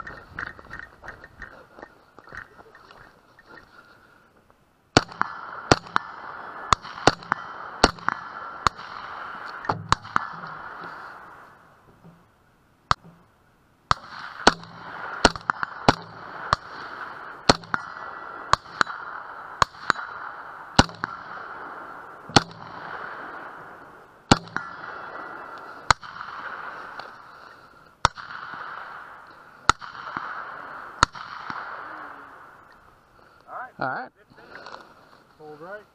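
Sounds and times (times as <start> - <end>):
steady hiss: 0.0 - 35.9
gunshots: 4.9 - 11.5, 13.9 - 32.6.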